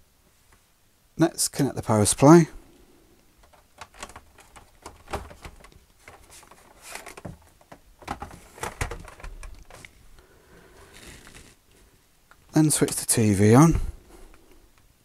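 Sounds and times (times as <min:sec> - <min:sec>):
plastic case shifting on desk: 0:03.4 - 0:09.9
clicks and knocks of handling: 0:03.4 - 0:10.0.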